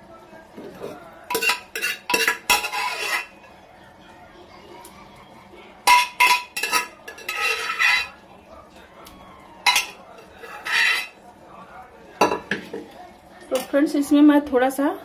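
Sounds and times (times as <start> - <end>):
spoon scraping across pan: 0.7 - 3.6, 5.8 - 8.2, 9.6 - 11.2
metal spoon clinking on pan: 1.3 - 3.3, 5.8 - 8.2, 9.6 - 11.2.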